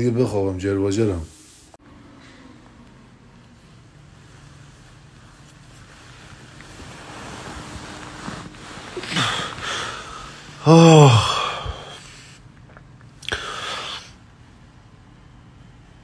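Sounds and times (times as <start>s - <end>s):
man yawning: 10.6s - 12.0s.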